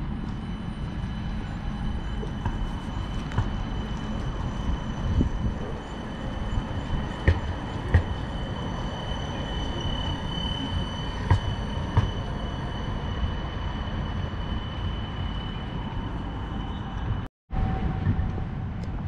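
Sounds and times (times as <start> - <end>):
high steady whine: 0.0 - 19.0
rail vehicle rumble: 0.0 - 19.0.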